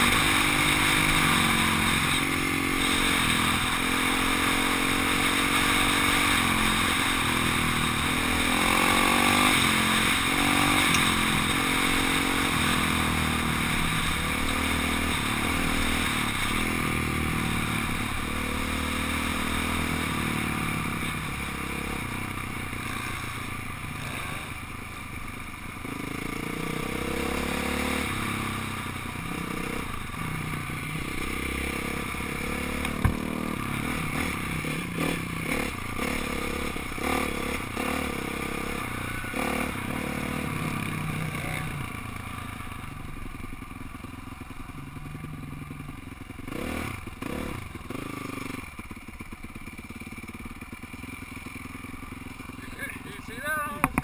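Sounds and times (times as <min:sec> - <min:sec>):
dirt bike engine revving: 0:00.0 - 0:24.7, 0:25.8 - 0:43.7, 0:44.4 - 0:48.9, 0:50.0 - 0:54.0
sharp knock: 0:53.8 - 0:54.0.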